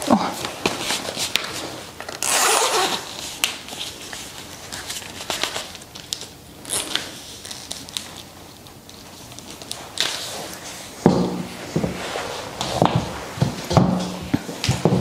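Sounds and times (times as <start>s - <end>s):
boot zipper pulled: 2.2s - 3.1s.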